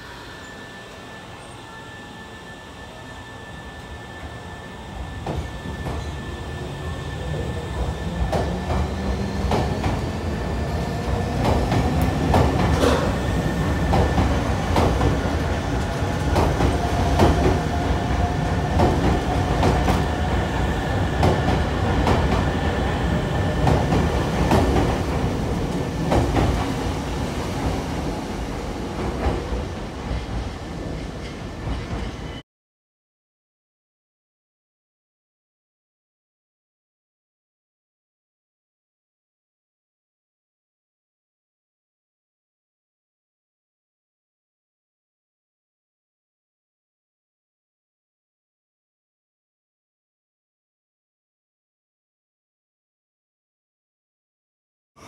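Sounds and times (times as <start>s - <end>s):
electric train rumble: 0.0s - 32.4s.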